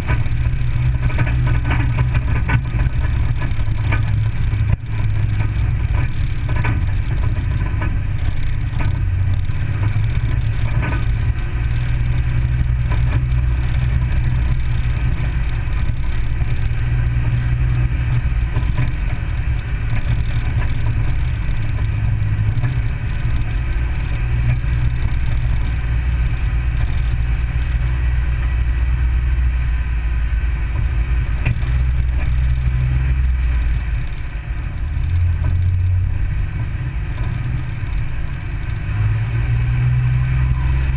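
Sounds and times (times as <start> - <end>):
tyres on gravel: 0.0 - 28.5
vehicle engine droning: 0.0 - 40.9
faint clicks: 0.1 - 28.0, 30.8 - 39.1.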